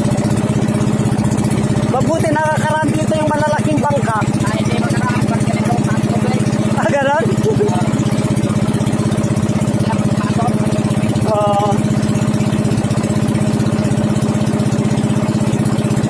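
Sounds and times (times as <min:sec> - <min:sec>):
boat motor chugging: 0:00.0 - 0:16.0.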